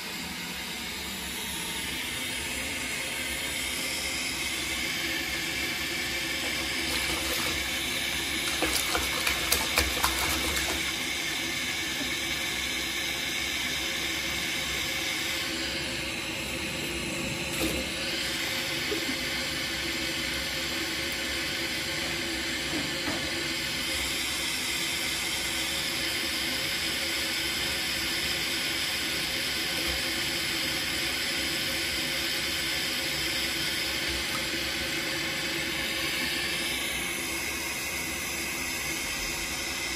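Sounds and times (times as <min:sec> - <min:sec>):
faucet running into water: 0:02.9 - 0:16.7
cat splashing water: 0:06.2 - 0:12.0.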